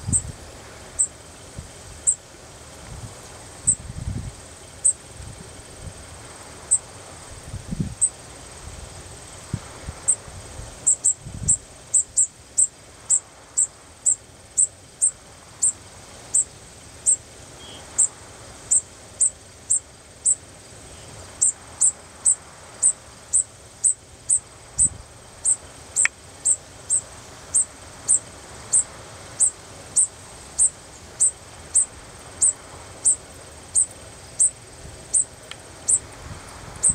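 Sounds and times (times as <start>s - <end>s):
fledgling sparrow begging calls: 21.4s - 36.0s.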